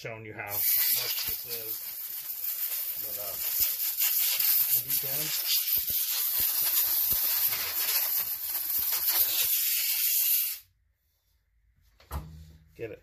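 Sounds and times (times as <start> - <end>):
compressed air blow gun hissing: 0.5 - 10.6.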